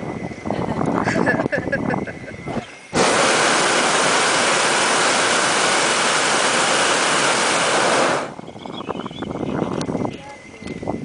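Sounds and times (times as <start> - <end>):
propane burner roaring: 0.0 - 10.1.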